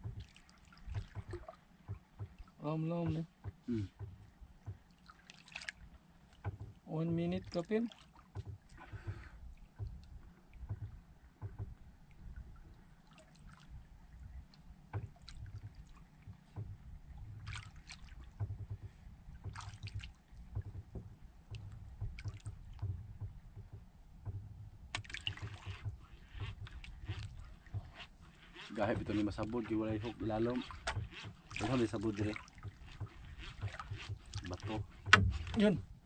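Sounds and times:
water lapping against boat hull: 0.0s - 36.0s
fishing rod and reel rustling: 25.0s - 35.9s.

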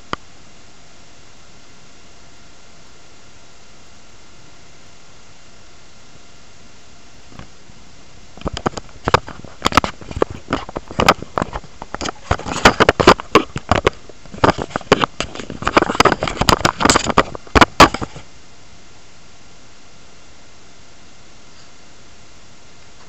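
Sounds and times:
phone microphone handling noise: 8.4s - 18.3s.

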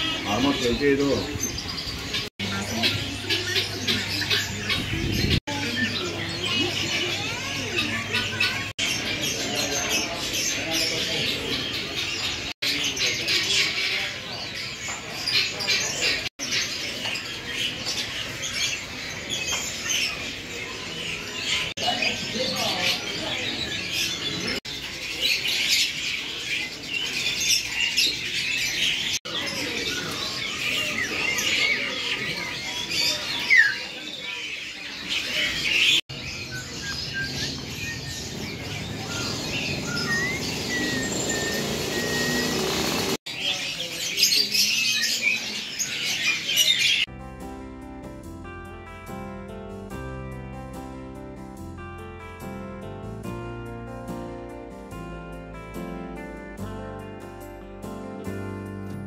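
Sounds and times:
caged birds chirping and squawking: 0.0s - 47.1s
low background murmur: 0.0s - 47.1s.

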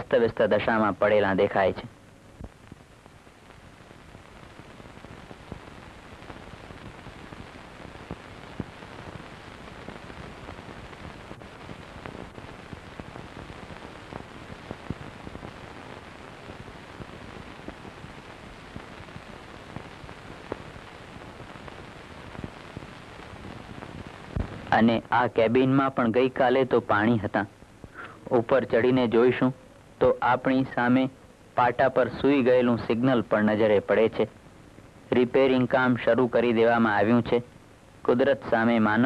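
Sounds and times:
film soundtrack hiss and crackle: 0.0s - 39.0s
clicks and pops: 16.5s - 24.8s.

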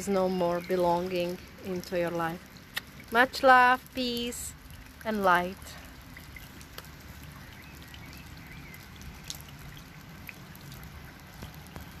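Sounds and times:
close drips: 0.0s - 12.0s
light rain patter: 0.0s - 12.0s.

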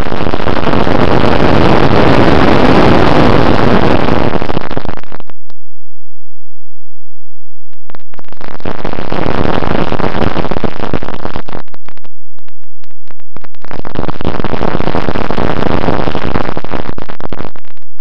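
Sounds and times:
wind rushing over microphone: 0.0s - 5.2s
crackling: 0.0s - 5.6s, 7.7s - 18.0s.

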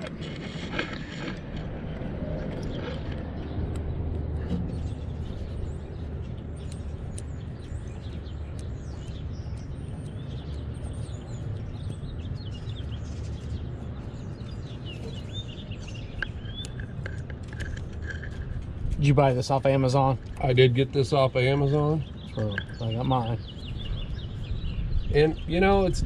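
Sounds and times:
small birds chirping: 0.0s - 26.0s.

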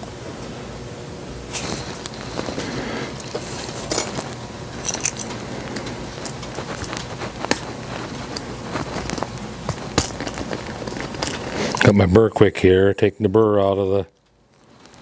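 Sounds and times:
hand tools handled on metal bench: 1.5s - 11.9s.

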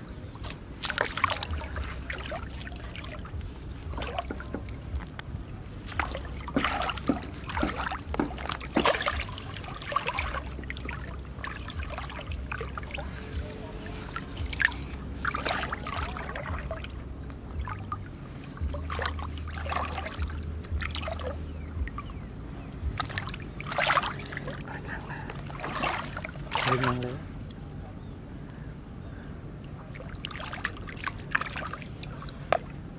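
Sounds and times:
hands splashing in muddy water: 0.4s - 5.2s, 5.8s - 22.1s, 22.9s - 24.7s, 25.4s - 27.2s, 29.9s - 32.7s.

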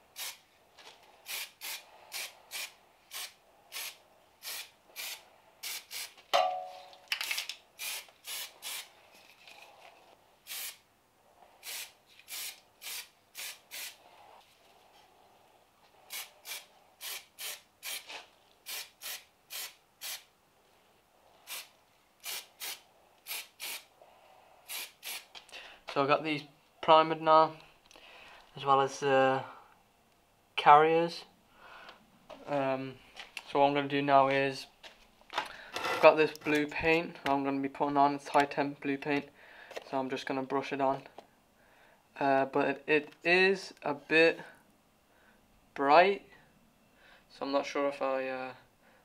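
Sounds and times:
spray can hissing bursts: 0.1s - 0.4s, 1.2s - 6.2s, 7.8s - 8.9s, 10.5s - 10.8s, 11.6s - 14.0s, 16.1s - 20.3s, 21.4s - 23.9s, 24.7s - 25.3s
sharp knock with ring: 6.4s - 6.8s.

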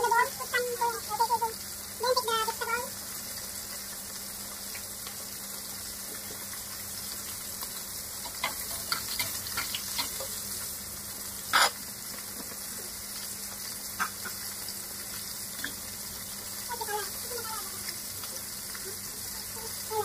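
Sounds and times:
fish sizzling in oil: 0.0s - 20.0s.

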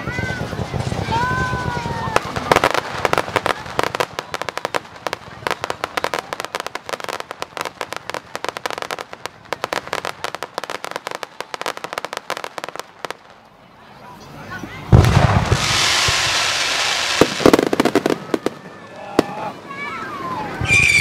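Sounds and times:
fireworks crackling: 0.0s - 21.0s
fireworks bang: 14.9s - 19.6s.

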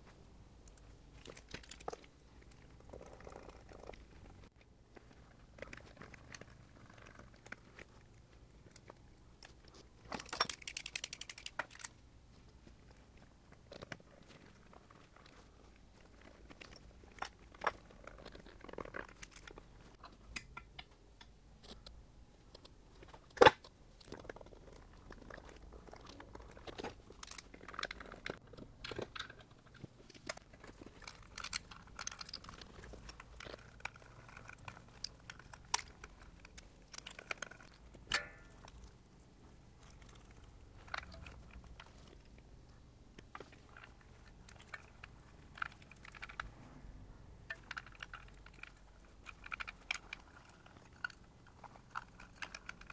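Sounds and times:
screwdriver working electrical wires: 10.2s - 11.9s.

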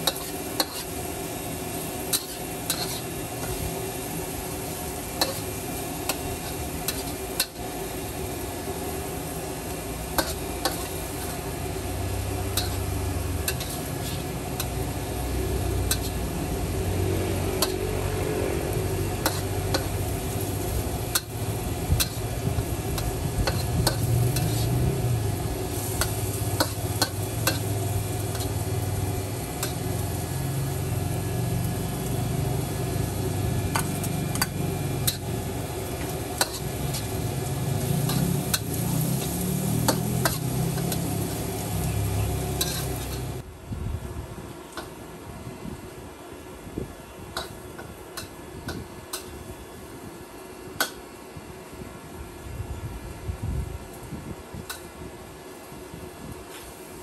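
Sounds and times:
spatula scraping wok: 0.0s - 43.4s
noodles sizzling in wok: 0.0s - 43.5s, 44.2s - 57.0s.

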